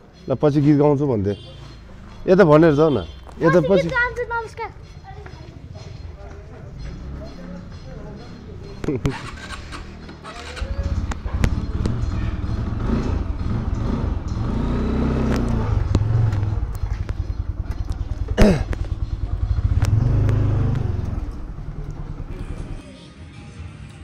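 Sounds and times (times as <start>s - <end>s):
motorbike engine running: 6.0s - 22.8s.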